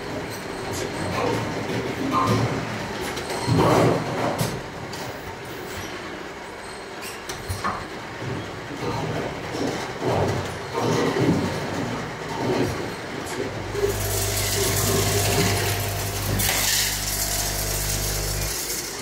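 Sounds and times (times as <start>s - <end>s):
steady motor hum: 13.6s - 19.0s
plastic bottles clattering on conveyor: 13.8s - 19.0s.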